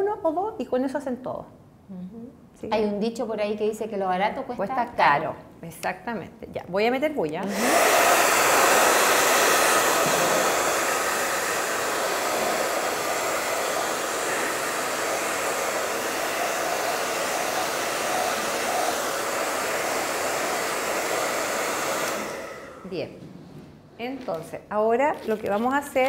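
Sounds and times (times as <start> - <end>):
hair dryer blowing: 7.4 - 23.1.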